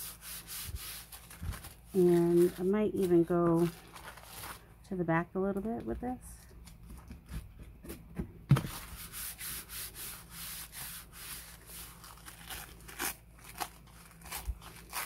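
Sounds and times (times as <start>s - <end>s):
hands rubbing paper: 0.0s - 4.6s, 8.8s - 12.6s.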